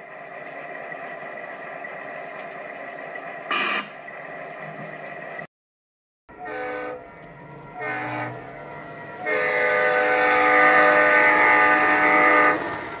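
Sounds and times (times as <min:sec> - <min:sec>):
diesel locomotive air horn: 0:06.3 - 0:07.1, 0:07.7 - 0:08.5, 0:09.2 - 0:12.8.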